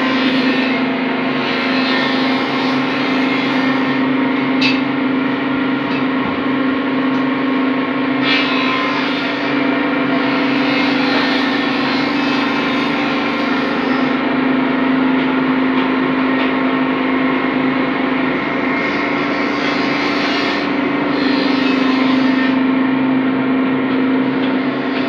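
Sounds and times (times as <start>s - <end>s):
mechanical drone with low hum: 0.0s - 25.0s.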